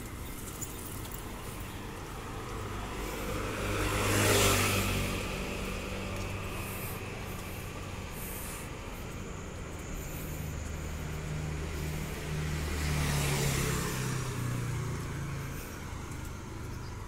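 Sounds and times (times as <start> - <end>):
low hum of traffic: 0.0 - 17.0
motor scooter passing: 0.0 - 17.0.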